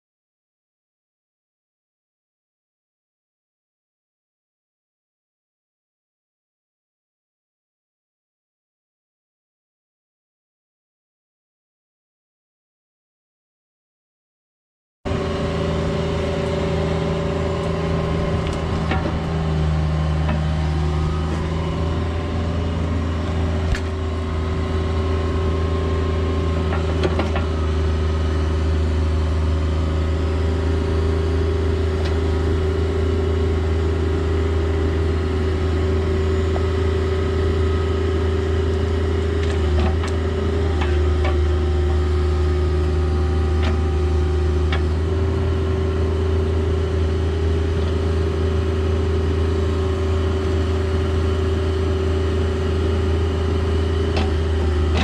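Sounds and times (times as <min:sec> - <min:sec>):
excavator diesel engine running: 0:15.1 - 0:55.0.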